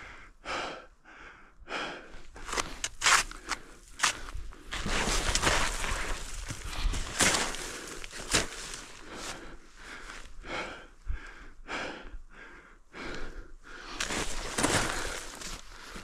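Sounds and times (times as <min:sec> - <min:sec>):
person breathing: 0:00.0 - 0:16.0
snowshoe steps crunching in snow: 0:04.1 - 0:09.4, 0:14.0 - 0:16.0.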